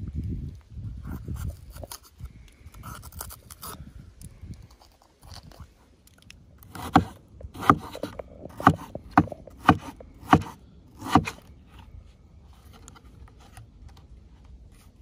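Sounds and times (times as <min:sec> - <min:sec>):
knife chopping on wooden board: 0:06.7 - 0:11.4.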